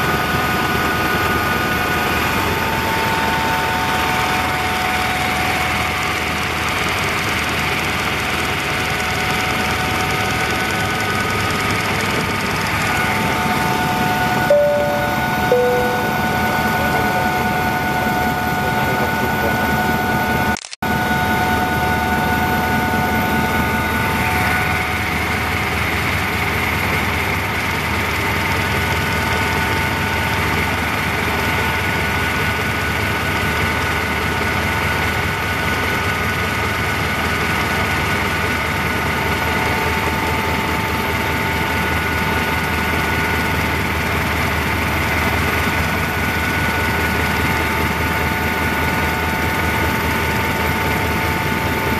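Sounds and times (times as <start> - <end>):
helicopter turbine and rotor drone: 0.0 - 51.9
high whining tones: 12.9 - 20.5.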